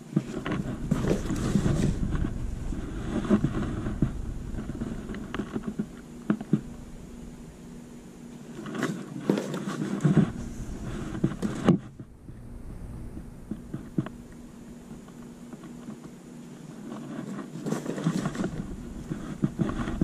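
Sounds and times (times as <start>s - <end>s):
rustling cardboard box flaps: 0.0s - 7.7s
faint steady hum: 0.0s - 20.0s.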